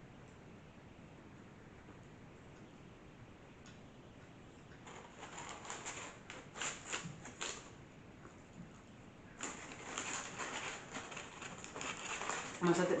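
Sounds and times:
paper wrapper crinkling: 0:04.8 - 0:07.8, 0:09.4 - 0:13.0.

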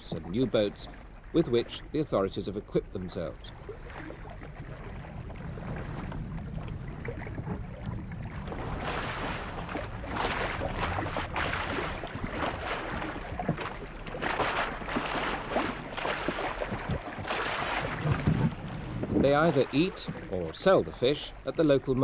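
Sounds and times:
river water splashing against boat: 0:00.0 - 0:22.0
steady low rumble: 0:00.0 - 0:22.0.

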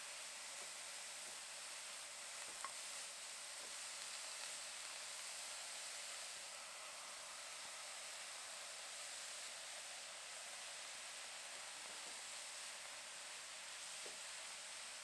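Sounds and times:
cabbage sizzling in a pot: 0:00.0 - 0:15.0
small tick: 0:02.4 - 0:02.8.

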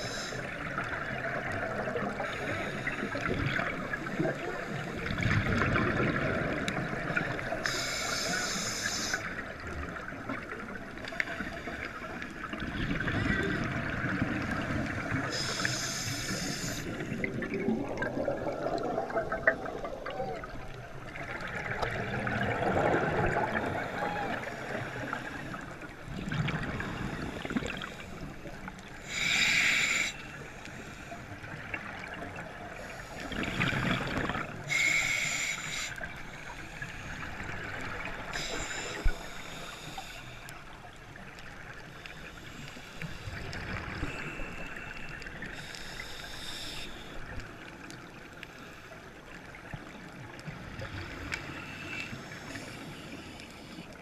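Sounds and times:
exhaled bubbles rushing: 0:03.2 - 0:07.4, 0:16.9 - 0:24.0, 0:33.3 - 0:34.6
diver breathing through regulator: 0:07.6 - 0:09.4, 0:15.2 - 0:17.4, 0:29.0 - 0:31.4, 0:32.8 - 0:37.4, 0:38.2 - 0:40.6, 0:42.2 - 0:47.2.

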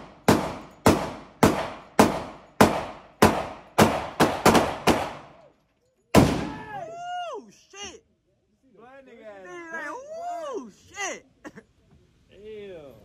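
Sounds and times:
gunshots with echo: 0:00.0 - 0:05.4.

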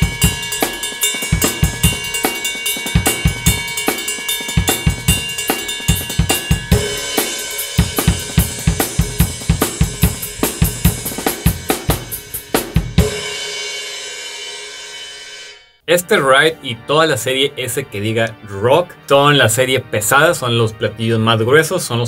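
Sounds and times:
ride cymbal ringing: 0:00.0 - 0:12.5
drum kit rock beat: 0:00.0 - 0:16.3.

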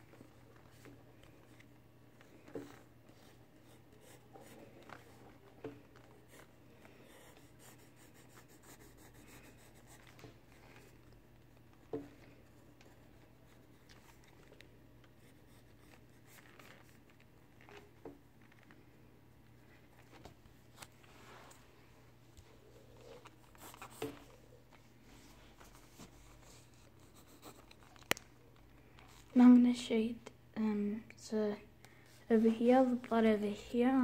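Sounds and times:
faint steady hum: 0:00.0 - 0:34.0
pencil scratching on paper: 0:07.1 - 0:10.2.

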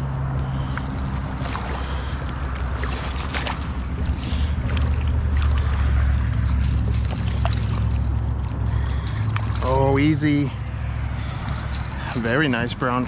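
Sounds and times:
river water rushing and splashing: 0:00.3 - 0:13.0
small sharp splashes: 0:00.5 - 0:10.0.

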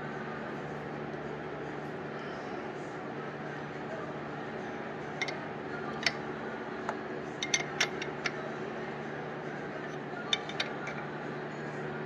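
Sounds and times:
steady low hum: 0:00.0 - 0:12.0
wrench clinking against nuts: 0:07.4 - 0:08.4, 0:10.3 - 0:11.0.

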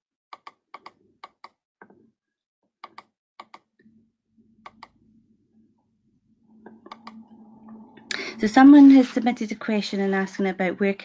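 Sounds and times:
faint low hum: 0:03.8 - 0:11.0
mouse and keyboard clicks: 0:06.9 - 0:07.2.

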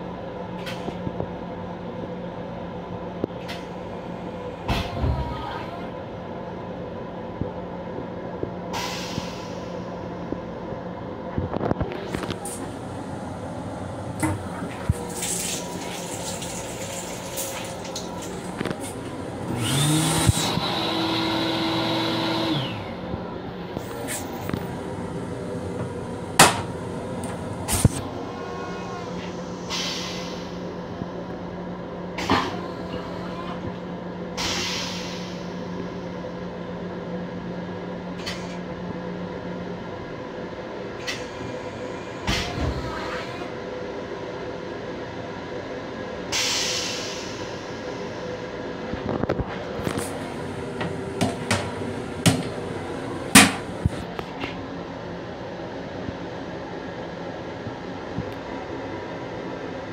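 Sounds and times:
train car hum: 0:00.0 - 0:59.9
train toilet flushing: 0:08.7 - 0:10.1, 0:12.0 - 0:23.1, 0:23.7 - 0:30.8, 0:32.2 - 0:36.1, 0:41.0 - 0:43.6, 0:46.3 - 0:48.2, 0:49.4 - 0:54.1.

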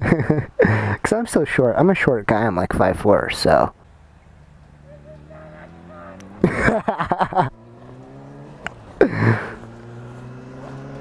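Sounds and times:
motorcycle engine running: 0:04.0 - 0:11.0
pulsing voice burst: 0:04.8 - 0:06.4.

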